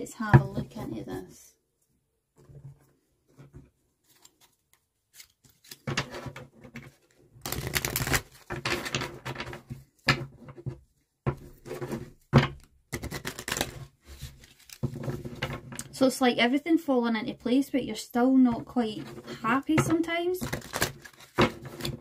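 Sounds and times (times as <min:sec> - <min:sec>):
cards being shuffled: 0:04.0 - 0:06.1, 0:07.4 - 0:08.9, 0:12.9 - 0:15.0, 0:20.4 - 0:22.0.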